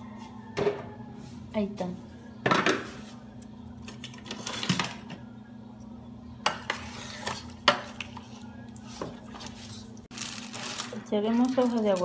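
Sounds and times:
spoon scraping a metal pot: 6.5 - 8.3.

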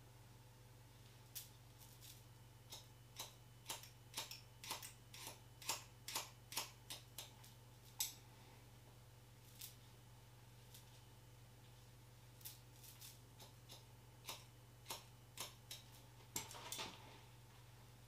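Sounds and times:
scissors snipping hair: 1.4 - 8.2, 12.4 - 16.5.

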